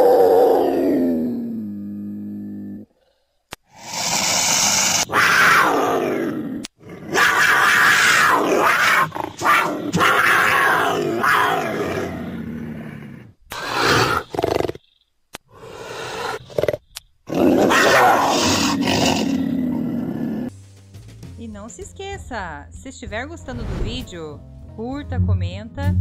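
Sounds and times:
leopard roaring: 0.0 - 14.9, 15.5 - 20.5.

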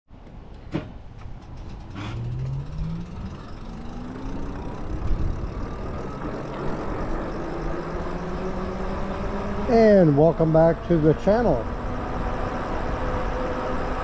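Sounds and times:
wind and road rumble: 0.1 - 14.0
electric motor whining: 1.6 - 9.7.

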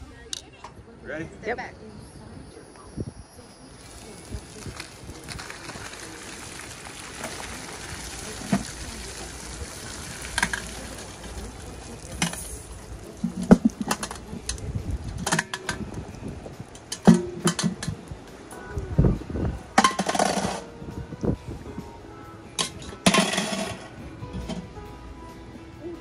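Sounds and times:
broth splashing out of pot: 3.8 - 17.8.

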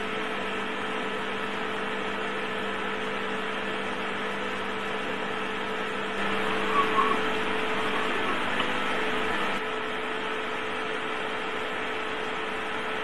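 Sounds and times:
electrical hum: 4.8 - 9.7.

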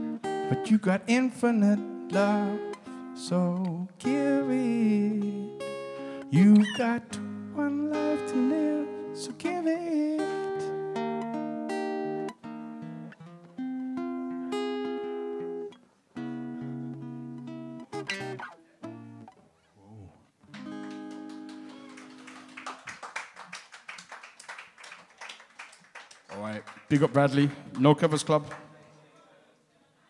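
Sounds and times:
acoustic guitar strumming chords: 0.0 - 19.4, 20.5 - 21.7.

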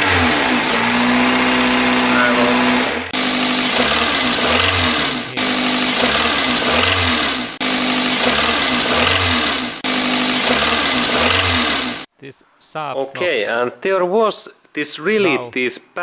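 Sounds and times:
car engine revving: 0.0 - 12.1.

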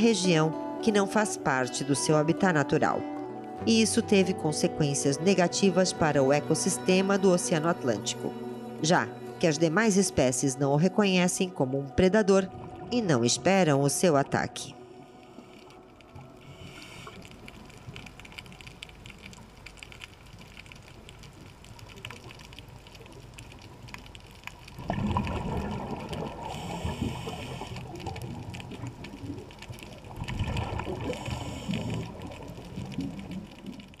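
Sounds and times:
gurgling air bubbles: 24.8 - 34.0.

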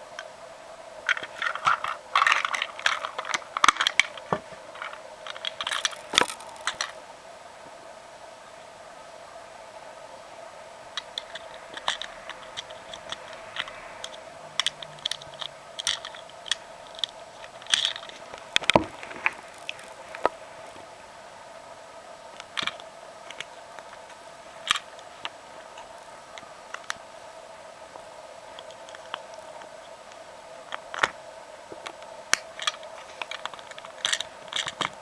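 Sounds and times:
steady faint hum: 0.0 - 35.0
hard plastic toy parts clicking: 1.1 - 7.0, 11.0 - 20.4, 22.4 - 24.9, 31.8 - 35.0.

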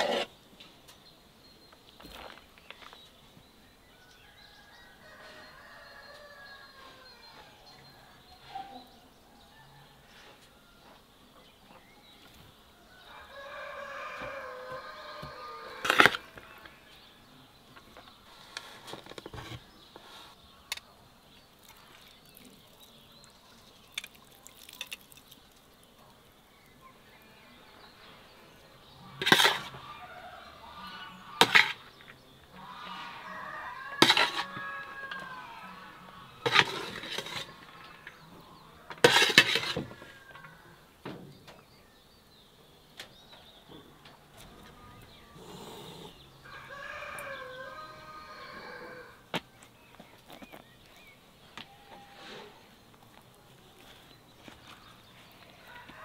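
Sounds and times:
metal skimmer scraping metal pan: 34.0 - 34.6, 36.4 - 37.6, 39.0 - 39.9
chickens calling faintly: 42.8 - 56.0.

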